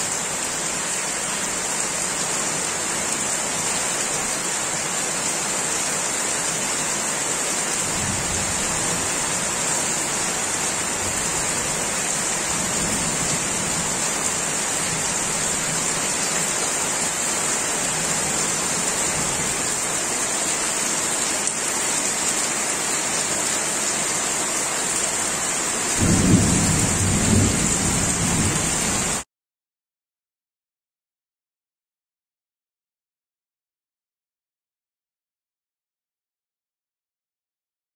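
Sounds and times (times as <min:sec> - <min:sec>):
rain falling on leaves: 0:00.0 - 0:29.2.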